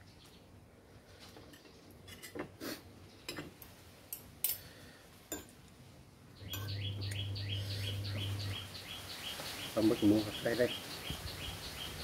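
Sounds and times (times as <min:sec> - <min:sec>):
low steady hum: 0:06.3 - 0:08.8
bird chirping: 0:06.3 - 0:12.0.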